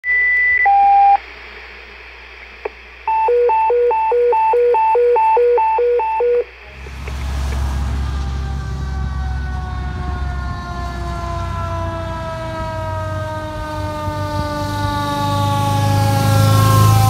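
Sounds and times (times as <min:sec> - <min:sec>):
steady dispatch tone: 0:03.1 - 0:13.2
passing fire engine: 0:06.7 - 0:17.0.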